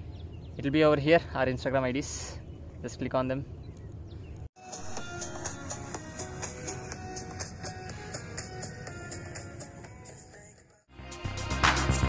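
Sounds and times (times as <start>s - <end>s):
background music with steady beat: 4.6s - 12.0s.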